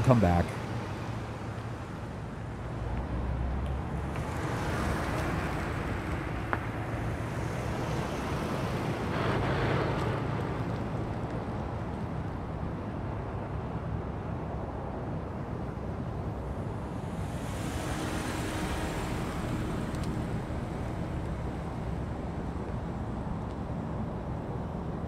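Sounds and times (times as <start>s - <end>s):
cars driving past: 0.0s - 12.0s, 16.9s - 23.7s.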